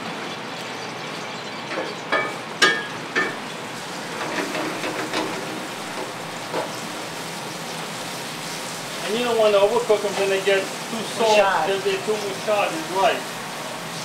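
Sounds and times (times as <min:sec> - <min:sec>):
tomatoes sizzling in a pan: 0:01.7 - 0:14.0
steady hiss: 0:02.1 - 0:14.0.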